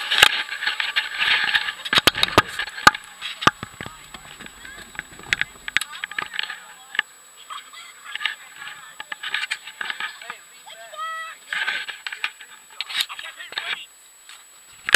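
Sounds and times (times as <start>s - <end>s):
wind: 0.0s - 14.9s
camera handling knocks and rubbing: 1.9s - 6.3s.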